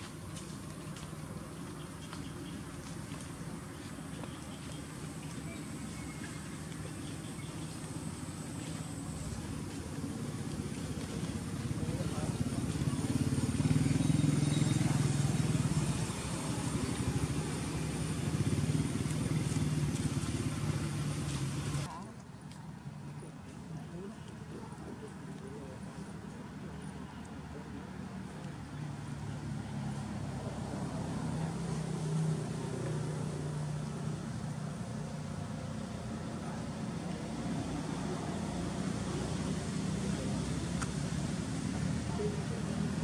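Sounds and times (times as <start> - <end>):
outdoor background noise: 0.0 - 43.0
small engine idling: 3.4 - 21.9.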